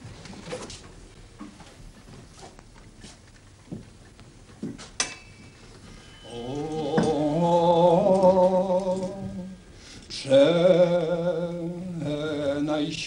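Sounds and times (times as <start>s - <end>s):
person chanting: 6.2s - 13.0s.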